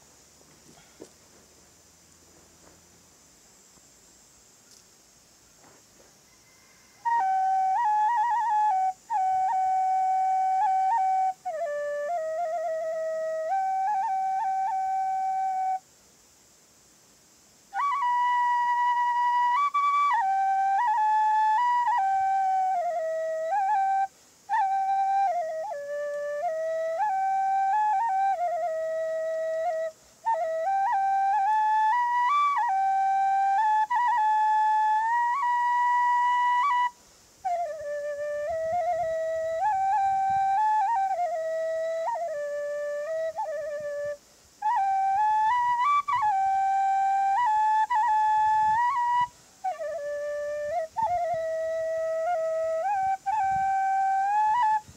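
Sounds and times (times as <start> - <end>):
bamboo flute melody: 5.6 - 16.0, 17.5 - 54.9.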